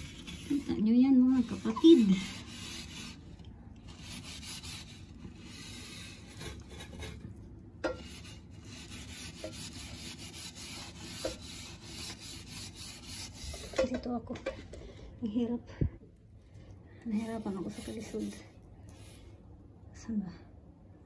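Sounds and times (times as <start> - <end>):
hand rubbing window glass: 0.0 - 7.2, 17.2 - 18.4.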